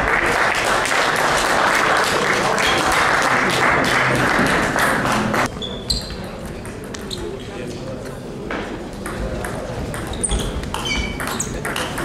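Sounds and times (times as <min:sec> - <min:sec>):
spectators applauding: 0:00.0 - 0:05.5.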